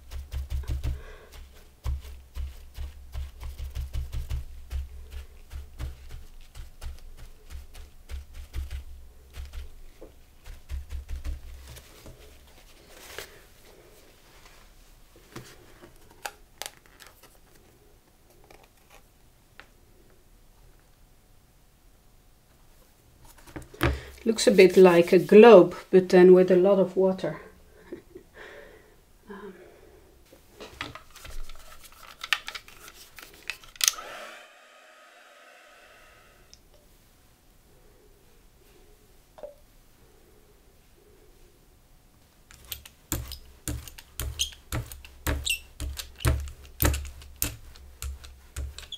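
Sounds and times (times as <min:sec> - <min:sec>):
paper towel dabbing thumps: 0:00.0 - 0:12.2
paper rustling: 0:10.5 - 0:13.4, 0:30.9 - 0:33.8
dryer motor whine: 0:33.9 - 0:36.6.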